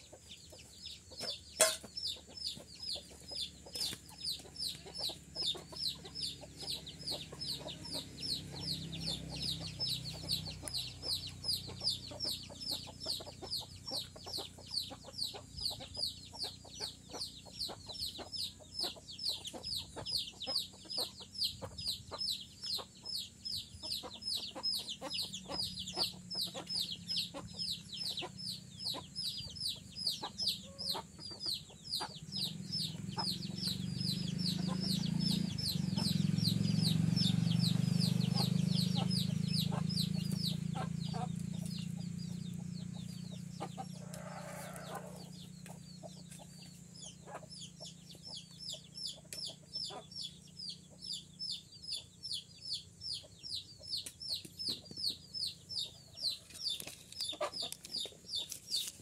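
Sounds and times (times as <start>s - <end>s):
parakeet chick calling: 0.0s - 46.3s, 47.0s - 58.9s.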